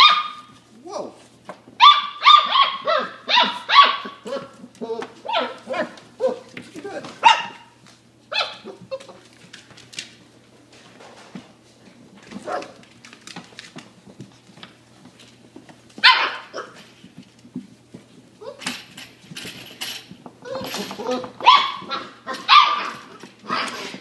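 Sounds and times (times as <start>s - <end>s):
puppies barking: 0.0s - 0.6s, 1.8s - 9.2s, 16.0s - 16.9s, 20.4s - 24.0s.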